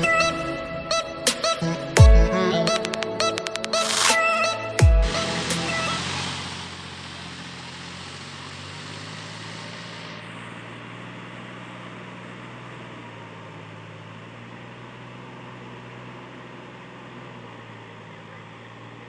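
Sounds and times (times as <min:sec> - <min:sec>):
tractor diesel engine under load: 0:05.0 - 0:19.0.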